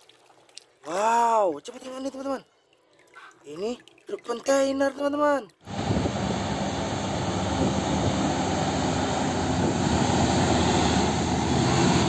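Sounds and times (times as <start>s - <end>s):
road and traffic noise: 5.7s - 12.0s
truck diesel engine running: 5.7s - 12.0s.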